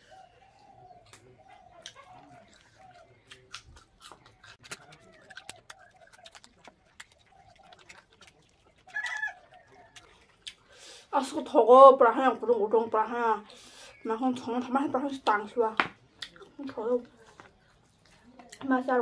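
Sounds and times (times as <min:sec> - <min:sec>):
chickens clucking: 0:00.0 - 0:11.0
chewing and smacking: 0:00.6 - 0:11.1, 0:16.1 - 0:19.0.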